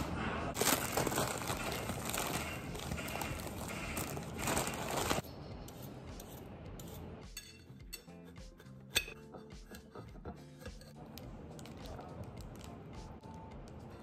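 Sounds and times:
soft background music: 0:00.0 - 0:14.0
plastic wrapper crinkling: 0:00.6 - 0:05.2
peeler and knife scraping carrot: 0:01.6 - 0:09.9.

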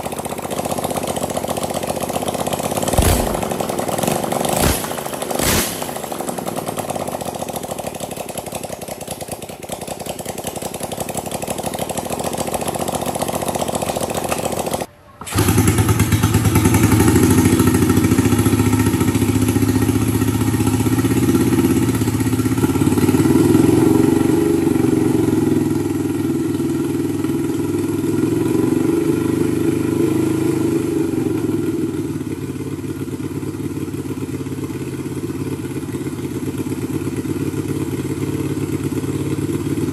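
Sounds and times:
small engine running: 0:00.0 - 0:26.9.

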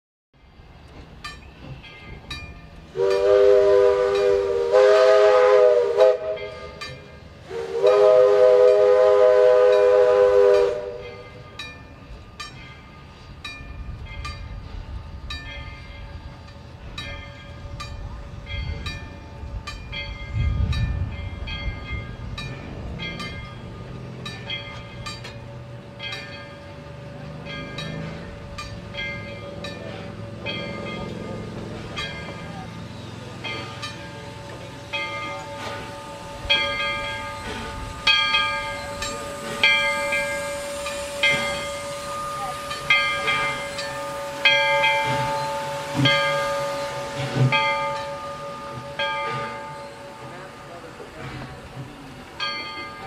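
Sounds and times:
locomotive bell ringing: 0:00.4 - 0:53.0
low rumble of locomotive: 0:00.4 - 0:53.0
steam whistle blasts: 0:02.9 - 0:06.8, 0:07.4 - 0:11.2, 0:35.4 - 0:51.4.

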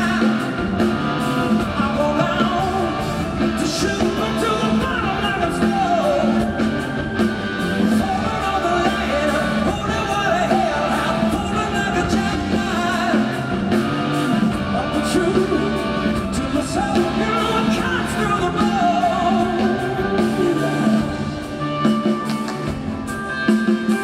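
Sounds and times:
male singer: 0:00.0 - 0:22.2
drums: 0:00.0 - 0:24.0
electric bass: 0:00.0 - 0:24.0
keyboards: 0:00.0 - 0:24.0.

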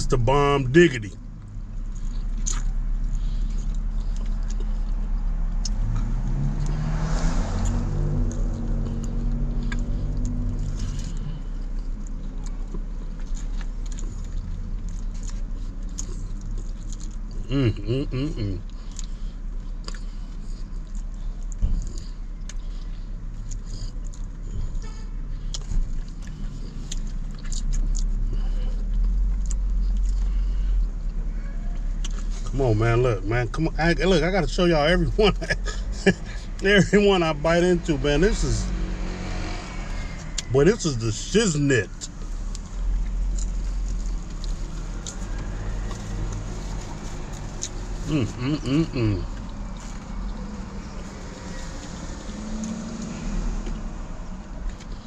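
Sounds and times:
vehicle passing by: 0:00.0 - 0:17.4, 0:18.8 - 0:55.0
street traffic: 0:00.0 - 0:55.0
vehicle engine humming: 0:00.0 - 0:55.0
wet chewing sounds: 0:01.0 - 0:17.5, 0:18.4 - 0:32.5, 0:41.9 - 0:55.0.

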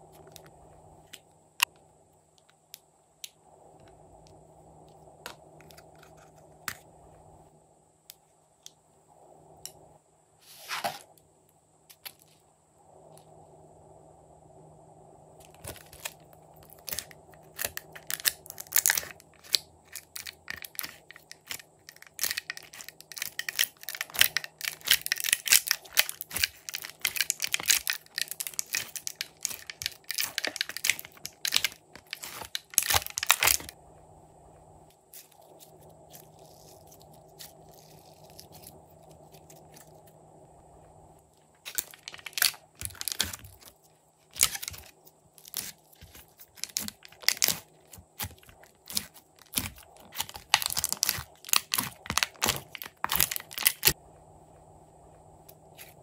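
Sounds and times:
slime crackling and popping: 0:15.5 - 0:33.8, 0:41.6 - 0:43.7, 0:44.3 - 0:54.0.

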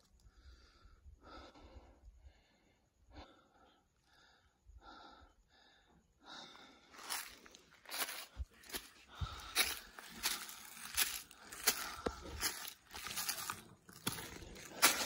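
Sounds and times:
person breathing heavily: 0:00.2 - 0:15.0.

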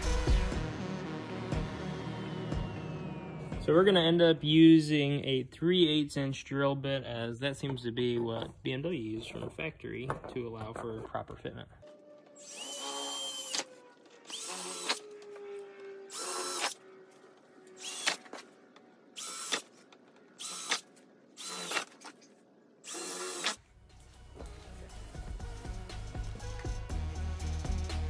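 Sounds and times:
cordless drill boring through plastic: 0:12.4 - 0:16.8, 0:17.7 - 0:18.4, 0:19.2 - 0:19.7, 0:20.4 - 0:22.1, 0:22.8 - 0:23.6.

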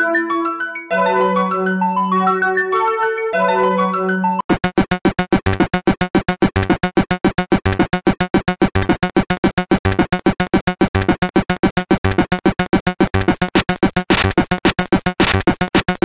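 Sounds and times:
staccato synthesizer music: 0:04.5 - 0:16.0.

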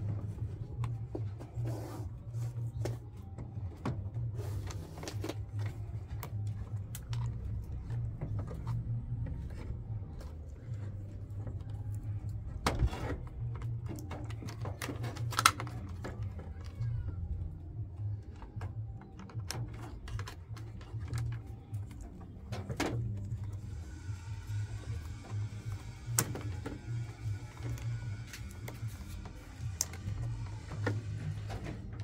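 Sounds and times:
plastic connectors clicking: 0:13.4 - 0:17.1, 0:26.0 - 0:31.3.

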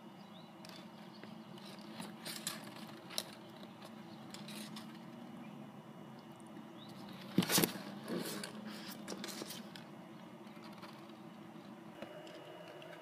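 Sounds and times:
faint high steady tone: 0:10.1 - 0:13.0.

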